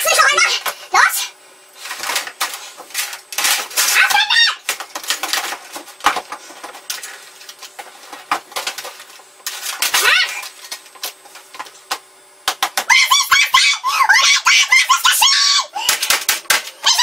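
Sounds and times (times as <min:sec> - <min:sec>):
child shrieking: 0:10.0 - 0:10.4, 0:12.9 - 0:15.9.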